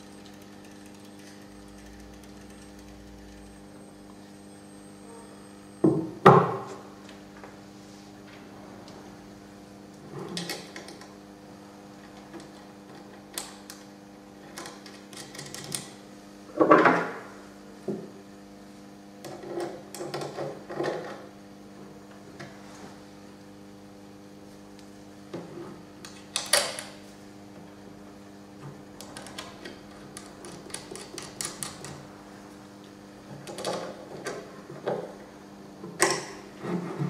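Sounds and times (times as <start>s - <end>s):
steady electrical hum: 0.0s - 37.0s.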